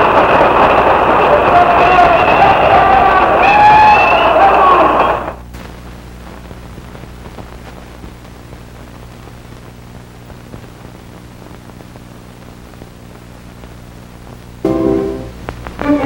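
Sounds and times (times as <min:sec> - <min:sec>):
low electrical hum: 0:00.0 - 0:16.0
steady hiss: 0:03.3 - 0:16.0
faint crackle: 0:05.3 - 0:14.6, 0:15.4 - 0:16.0.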